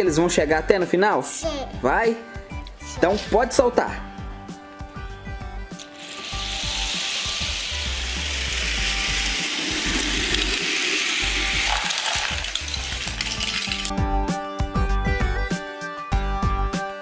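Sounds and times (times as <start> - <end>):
toy cars rattling on plastic track: 5.8 - 13.9.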